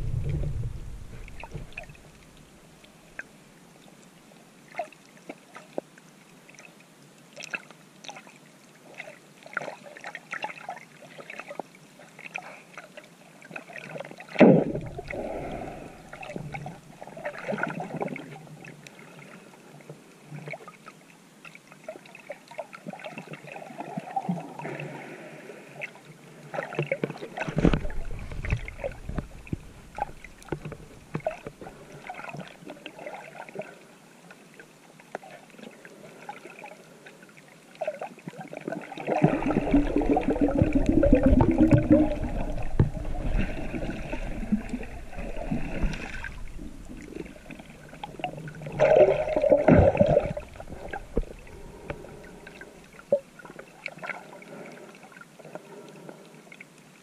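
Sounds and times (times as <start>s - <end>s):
deep water bursts: 0.0s - 2.6s, 14.4s - 16.8s, 38.7s - 53.2s
water sloshing and gurgling: 0.0s - 57.0s.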